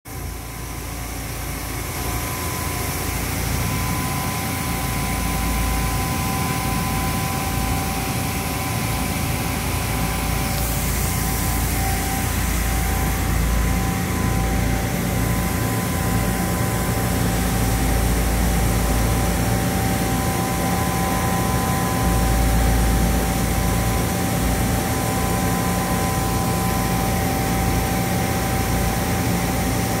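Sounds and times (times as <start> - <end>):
machine hum: 0.1 - 30.0
steady high tones: 1.7 - 17.3.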